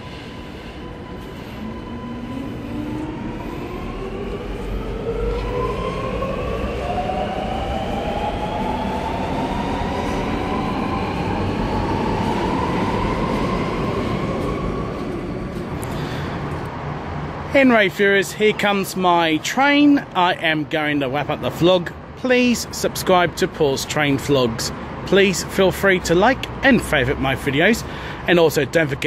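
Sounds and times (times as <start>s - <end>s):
metro train motor whine rising: 0.0s - 16.6s
train running noise: 0.0s - 16.9s.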